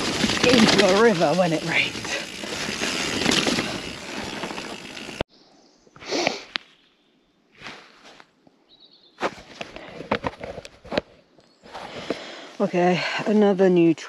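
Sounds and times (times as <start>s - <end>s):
bike tyres rattling on stones: 0.0s - 5.2s
wind: 0.0s - 14.0s.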